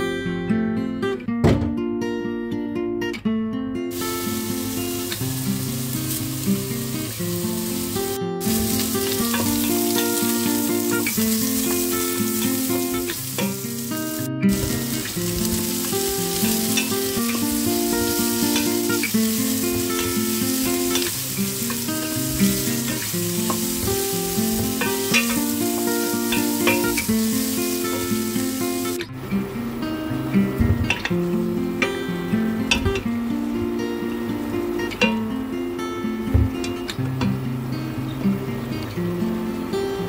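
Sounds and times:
vegetables sizzling in a pot: 3.9s - 35.4s.

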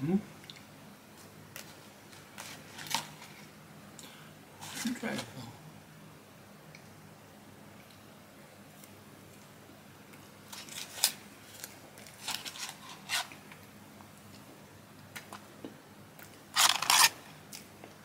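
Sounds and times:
paper wrapper crinkling: 10.5s - 13.4s, 16.6s - 17.2s.

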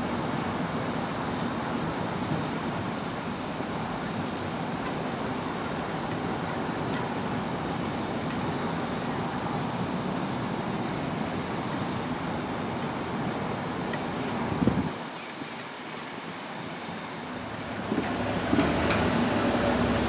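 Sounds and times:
diesel locomotive running: 17.4s - 20.0s.

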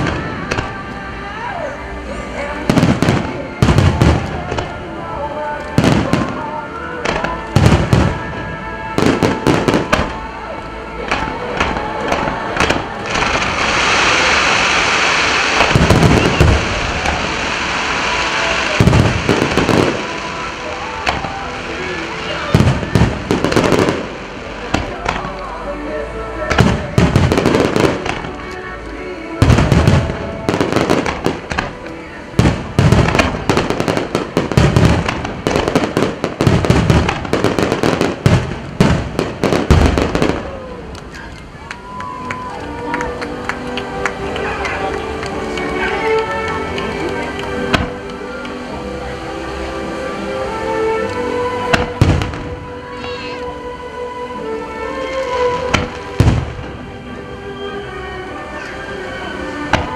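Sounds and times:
fireworks crackling hiss: 0.0s - 59.9s
deep firework thumps: 51.7s - 52.6s.

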